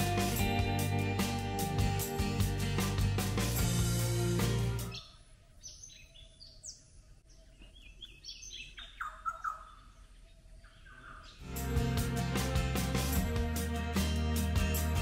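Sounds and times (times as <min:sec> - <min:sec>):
background music: 0:00.0 - 0:05.0, 0:11.4 - 0:15.0
birds chirping: 0:04.0 - 0:11.6.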